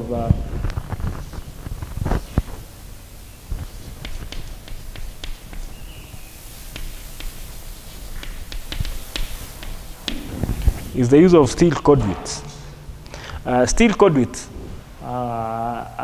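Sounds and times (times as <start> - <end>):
chalk writing on blackboard: 3.5 - 10.9.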